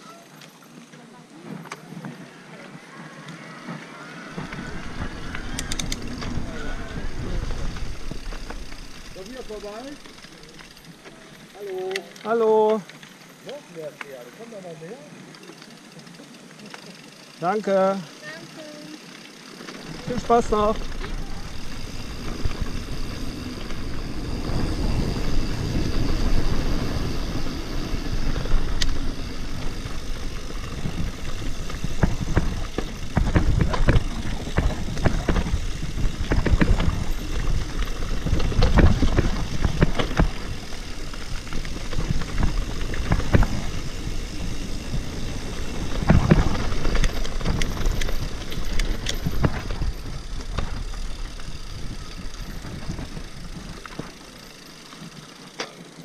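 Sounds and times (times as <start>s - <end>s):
bike tyre noise: 0.0s - 56.0s
bike knocking and rattling: 3.4s - 56.0s
wind rushing on microphone: 3.6s - 9.1s, 20.1s - 53.8s.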